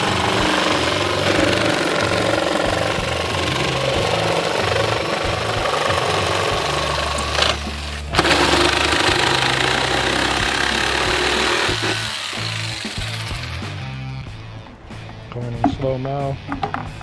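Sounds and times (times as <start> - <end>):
jigsaw cutting plastic: 0.0 - 13.6
background music: 0.0 - 17.0.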